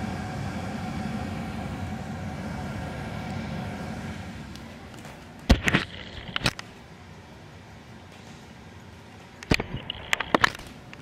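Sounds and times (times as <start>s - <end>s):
furnace blower air rushing: 0.0s - 7.3s.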